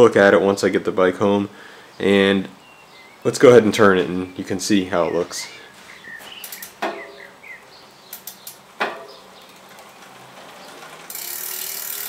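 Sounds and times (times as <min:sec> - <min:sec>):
bike hub clicking: 0:06.4 - 0:06.8, 0:08.0 - 0:12.0.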